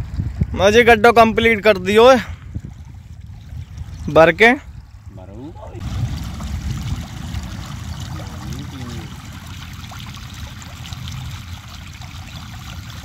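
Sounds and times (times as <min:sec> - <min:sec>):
water trickling into a pit: 0:02.1 - 0:13.0
low rumble: 0:04.7 - 0:12.0.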